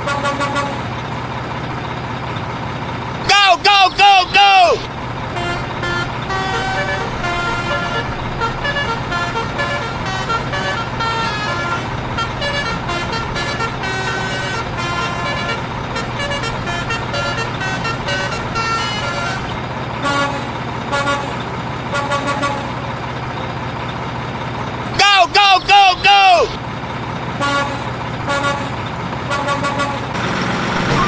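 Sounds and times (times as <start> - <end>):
truck engine running: 0.0 - 31.0.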